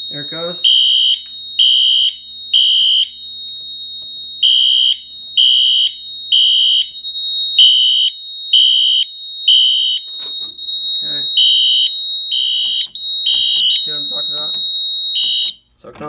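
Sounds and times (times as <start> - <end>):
fire alarm horn beeping: 0.0 - 15.7.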